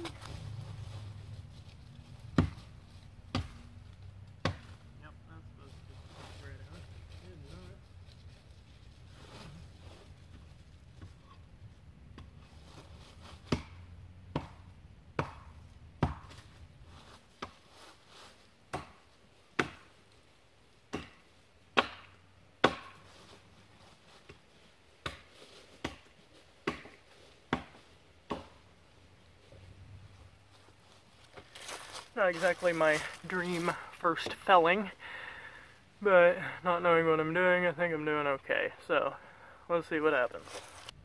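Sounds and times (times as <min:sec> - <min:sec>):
hand tool striking wood: 0:18.7 - 0:19.0, 0:19.6 - 0:19.9, 0:20.9 - 0:21.2, 0:21.8 - 0:23.0, 0:25.0 - 0:28.6.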